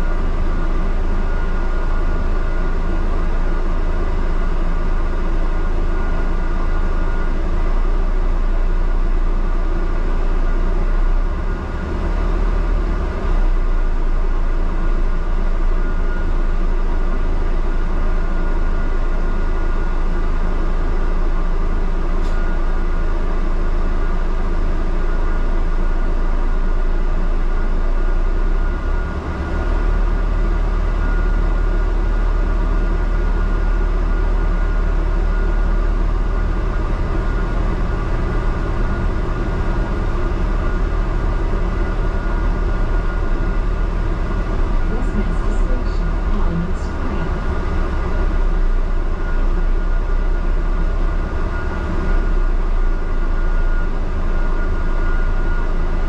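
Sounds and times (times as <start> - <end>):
bus engine drone: 0.0 - 56.0
faint high whine: 28.6 - 56.0
road noise: 31.6 - 56.0.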